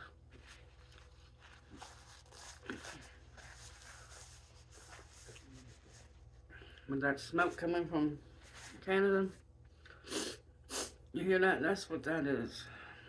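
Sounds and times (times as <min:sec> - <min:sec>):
low room hum: 0:00.0 - 0:13.0
paper napkin rustling: 0:00.3 - 0:06.4, 0:08.4 - 0:08.8.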